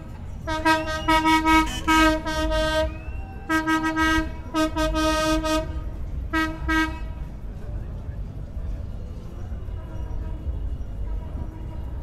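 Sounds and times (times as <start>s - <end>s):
low wind: 0.0s - 12.0s
street rumble: 0.0s - 12.0s
horn honking short blasts: 0.5s - 7.1s.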